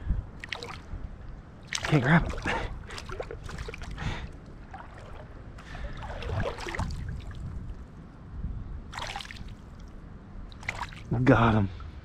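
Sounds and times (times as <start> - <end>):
wind rumble on microphone: 0.0 - 12.0
fish thrashing and splashing water: 0.4 - 0.9, 1.6 - 7.6, 8.9 - 9.9, 10.5 - 11.1.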